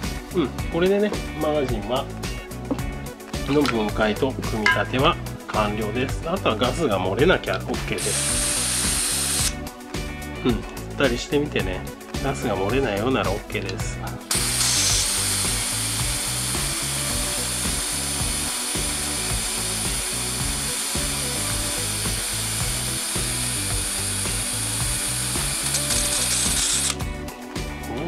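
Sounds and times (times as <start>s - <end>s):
gas hissing: 7.9s - 9.6s, 14.3s - 27.0s.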